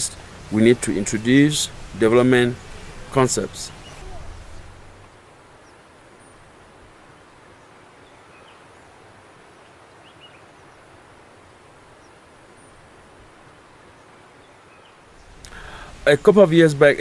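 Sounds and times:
outdoor ambient hiss: 0:00.0 - 0:17.0
faint bird chirps: 0:02.6 - 0:13.1.

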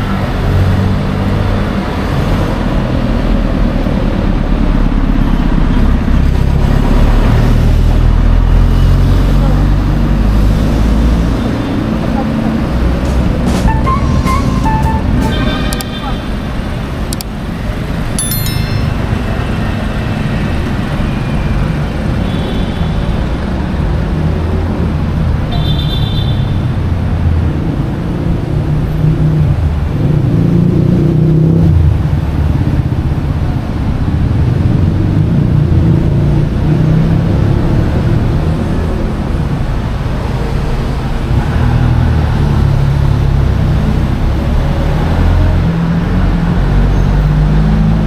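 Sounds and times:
road traffic rumble: 0:00.0 - 0:48.0
short high-pitched tones: 0:18.2 - 0:19.7.

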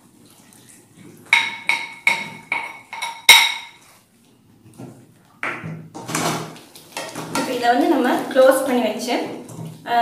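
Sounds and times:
metal pan ringing knocks: 0:01.4 - 0:03.8.

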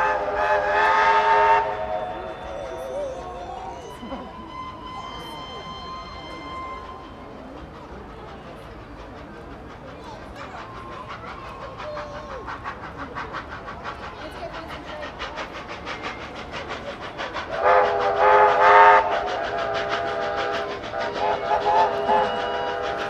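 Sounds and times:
train chime horn: 0:03.9 - 0:07.3, 0:21.6 - 0:23.0.

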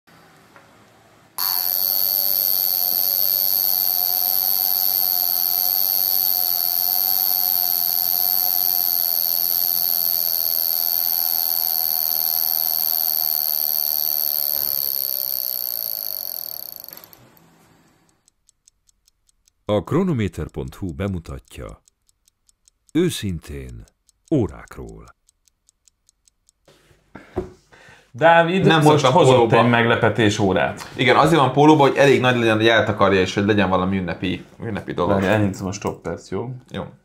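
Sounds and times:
alarm watch buzzing: 0:01.4 - 0:17.4.

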